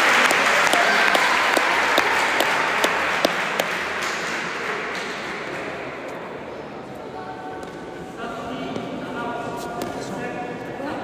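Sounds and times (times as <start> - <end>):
spectators applauding: 0.0 - 5.5.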